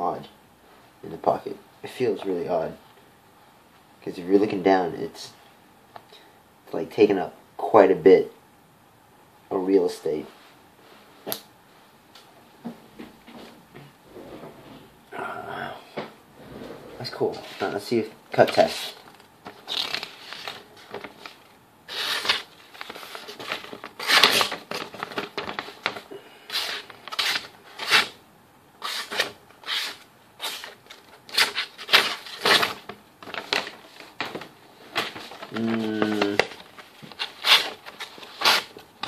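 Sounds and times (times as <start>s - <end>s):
paper rustling: 18.4s - 26.0s, 28.9s - 38.9s.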